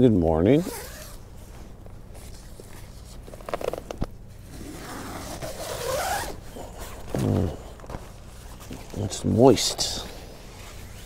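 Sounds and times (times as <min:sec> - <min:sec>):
tent zipper drawn open: 0:00.6 - 0:01.2, 0:02.2 - 0:08.9, 0:10.4 - 0:11.0
rustling and handling: 0:00.6 - 0:11.0.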